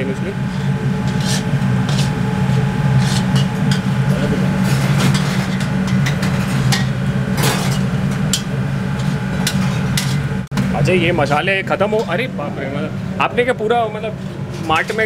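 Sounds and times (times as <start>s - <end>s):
steady low rumble: 0.0s - 15.0s
steel spatula scraping pan: 0.5s - 4.0s, 4.6s - 10.3s.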